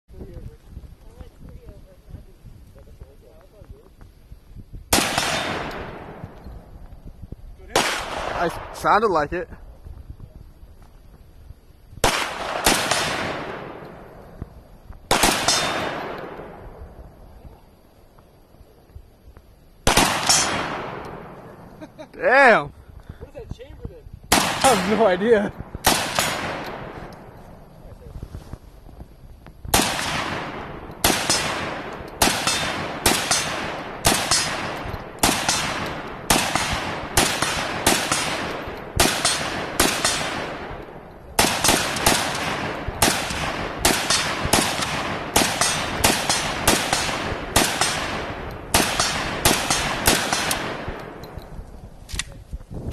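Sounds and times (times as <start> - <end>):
rifle shots with echo: 4.9 - 6.5, 7.7 - 9.2, 12.0 - 14.5, 15.1 - 17.0, 19.8 - 22.6, 24.3 - 27.5, 29.7 - 51.5.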